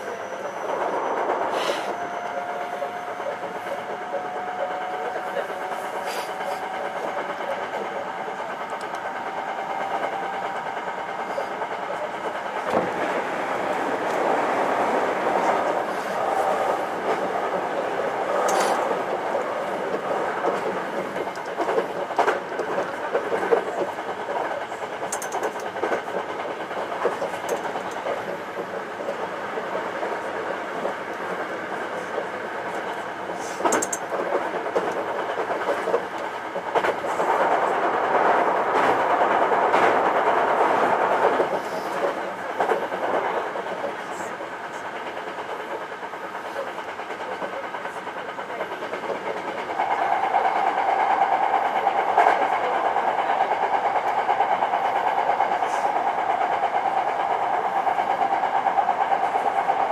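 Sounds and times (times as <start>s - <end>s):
train wheels rumbling on rail: 0.0s - 59.9s
wheels clacking over rail joints: 7.1s - 59.9s.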